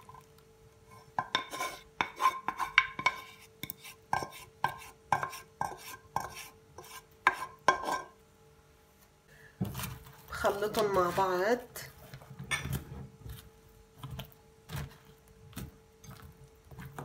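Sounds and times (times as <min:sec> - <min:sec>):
utensil scraping in a saucepan: 0:00.0 - 0:08.2, 0:09.7 - 0:17.0.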